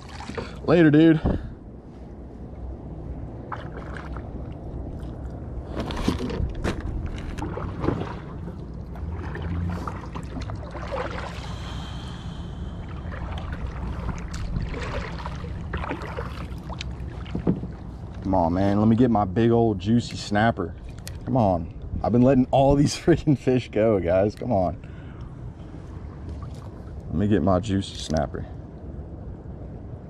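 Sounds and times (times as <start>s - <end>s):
paddle splashing and dripping: 0.0s - 0.7s, 3.4s - 18.3s
low steady rumble: 0.0s - 30.0s.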